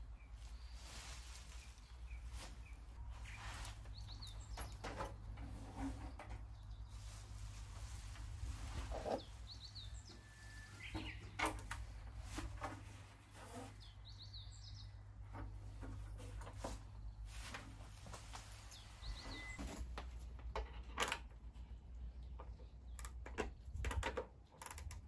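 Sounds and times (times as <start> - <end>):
plastic sheet rustling: 0.4 - 4.0, 6.8 - 9.5
bird chirps: 9.0 - 11.5, 13.8 - 15.0, 18.7 - 19.6.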